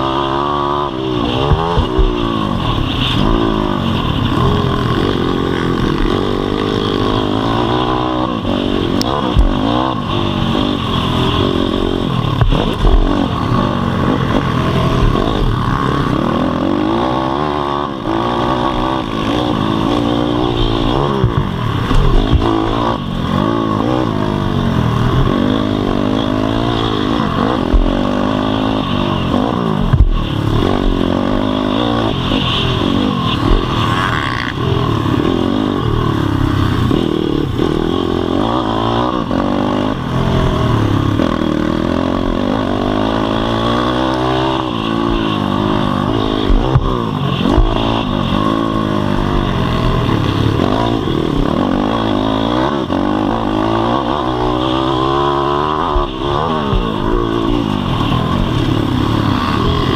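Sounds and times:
motorbike engine revving: 0.0s - 59.9s.

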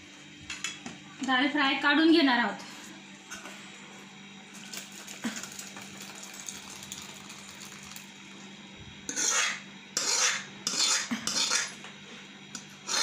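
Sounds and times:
metal spoon scraping pan: 9.1s - 11.8s.

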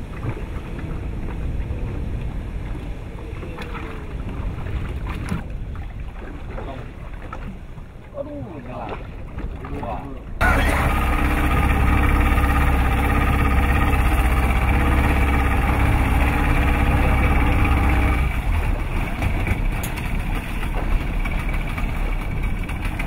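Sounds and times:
boat engine idling: 10.4s - 23.0s
rough noisy rumble: 10.4s - 23.0s.

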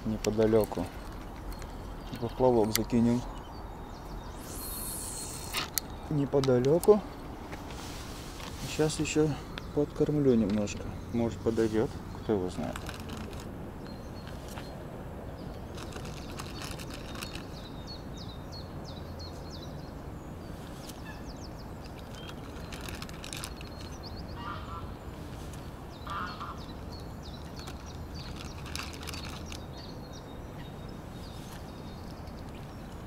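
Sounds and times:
small birds chirping: 0.0s - 33.0s
waterfowl honks: 24.4s - 24.9s, 26.0s - 26.6s.

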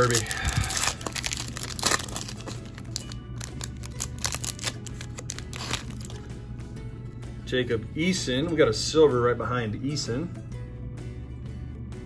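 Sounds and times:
foil wrapper crinkling and tearing: 0.0s - 6.2s
background music: 0.0s - 12.0s.

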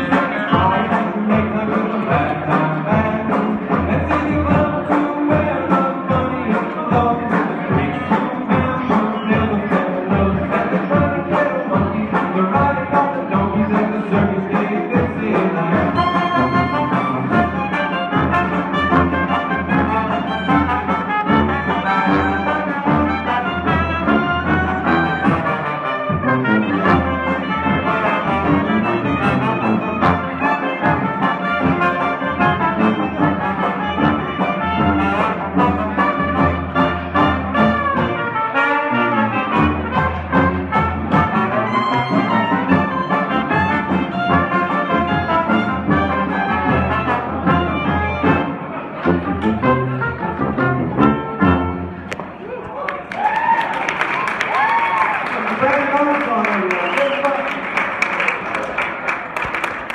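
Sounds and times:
sousaphone bass line: 0.0s - 25.6s
bass drum: 0.0s - 38.0s
trumpets and trombone melody: 0.0s - 52.0s
banjo: 0.0s - 52.1s.

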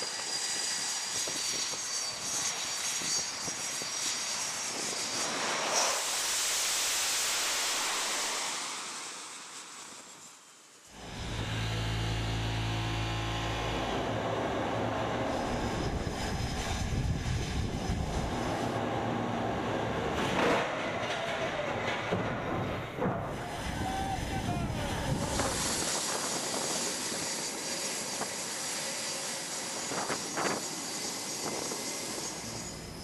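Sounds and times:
jet fighter engines: 0.0s - 33.0s
machinery low hum: 10.9s - 20.3s.

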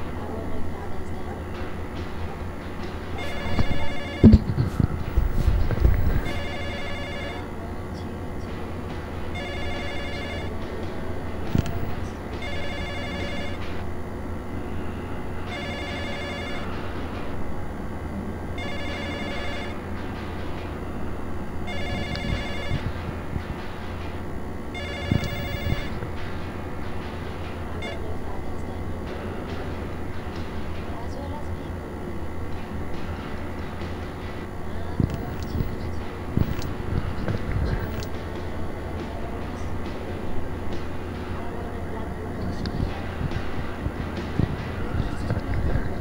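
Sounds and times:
steady low hum: 0.0s - 46.0s
telephone electronic ring: 3.2s - 4.6s, 6.1s - 7.6s, 9.3s - 10.6s, 12.4s - 13.8s, 15.5s - 16.8s, 18.6s - 19.8s, 21.6s - 23.0s, 24.7s - 26.0s, 27.8s - 28.1s.

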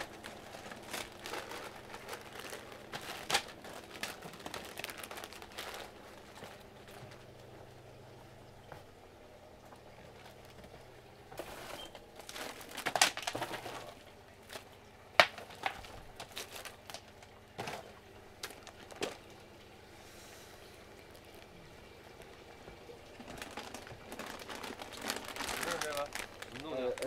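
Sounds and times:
plastic packaging rustling: 0.0s - 7.6s, 10.0s - 19.5s, 20.8s - 27.0s
clicks and knocks of goods: 11.4s - 19.4s.

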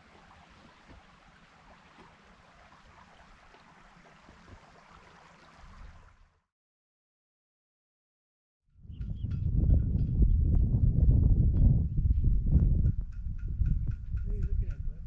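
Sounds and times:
creek flowing over rocks: 0.0s - 6.4s.

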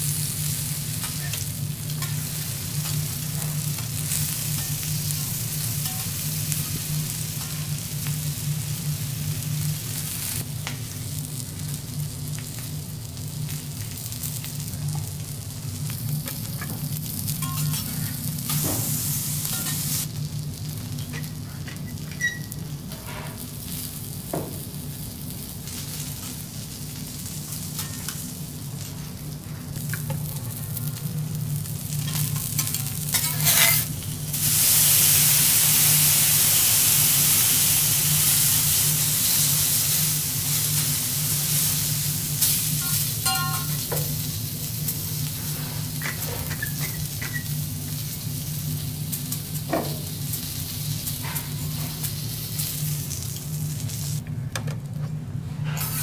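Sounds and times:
food sizzling on a griddle: 0.0s - 54.2s, 55.7s - 56.0s
loud hissing sizzle: 0.0s - 54.3s
metal spatulas scraping: 32.6s - 33.9s, 55.6s - 56.0s.

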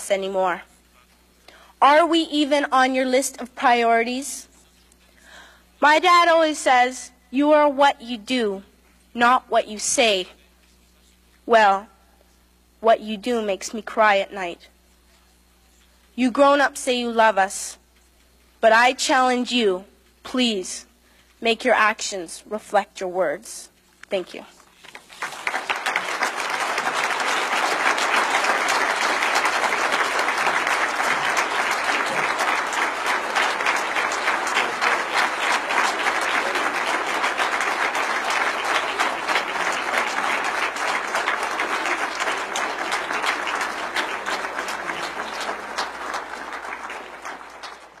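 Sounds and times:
large audience applauding: 24.8s - 48.0s.

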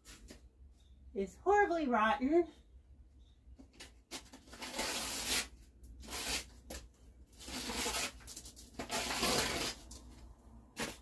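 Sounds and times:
plywood tearing: 4.1s - 10.2s.

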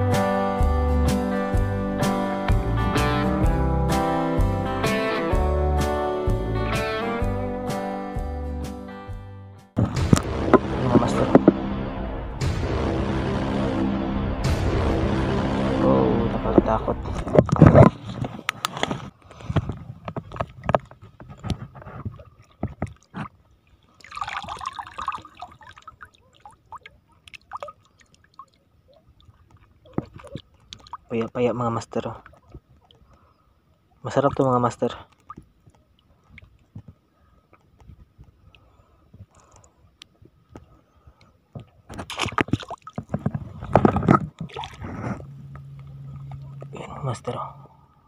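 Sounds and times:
seawater splashing and dripping: 20.3s - 46.7s
faint clicks: 35.1s - 41.7s.

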